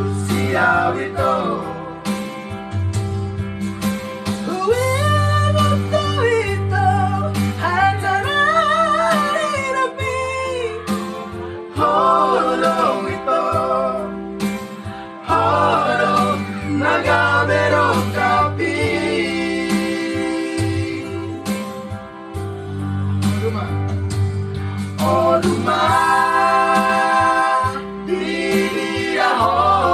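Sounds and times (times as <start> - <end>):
men singing together: 0.0 - 1.9, 11.7 - 14.2, 15.2 - 21.6, 25.0 - 29.9
electronic keyboard chords: 0.0 - 29.9.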